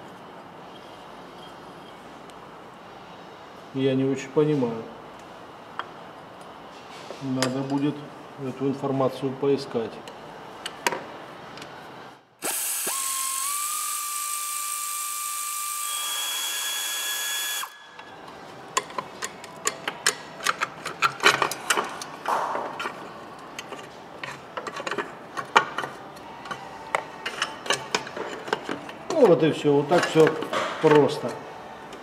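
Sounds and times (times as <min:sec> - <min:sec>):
power tool spinning: 0:12.4 - 0:17.8.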